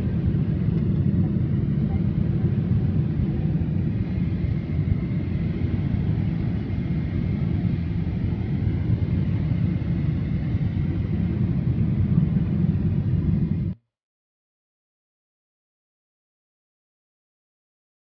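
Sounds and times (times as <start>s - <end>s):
airplane cabin engine rumble: 0.0s - 13.8s.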